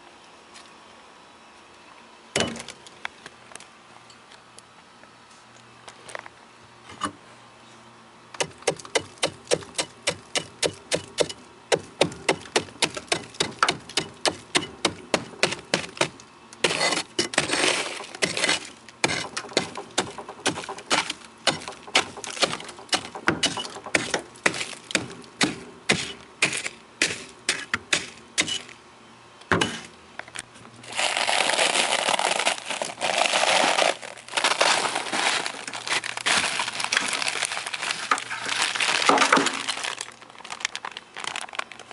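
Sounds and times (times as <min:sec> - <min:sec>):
chisel chipping ice: 0:08.4 - 0:28.7
frost crunching and scraping: 0:08.4 - 0:28.7, 0:30.8 - 0:41.9.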